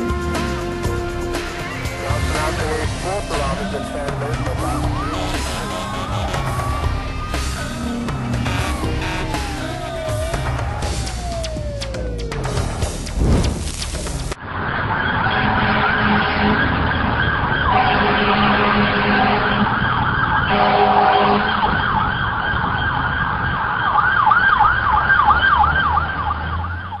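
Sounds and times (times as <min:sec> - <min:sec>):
emergency siren wailing: 0:00.0 - 0:13.1, 0:14.4 - 0:27.0
low rumble: 0:06.8 - 0:14.4.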